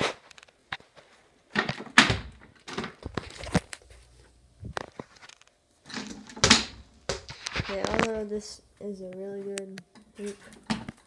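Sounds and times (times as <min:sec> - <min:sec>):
rim and door banging: 0:05.9 - 0:07.2
rubber ball hitting floor: 0:06.1 - 0:08.1.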